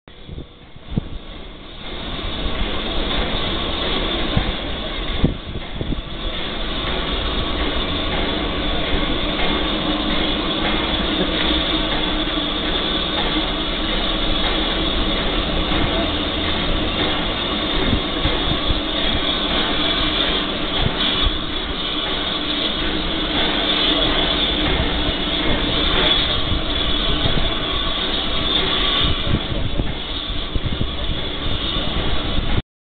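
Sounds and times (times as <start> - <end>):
steam locomotive hissing steam: 0.1 - 32.6.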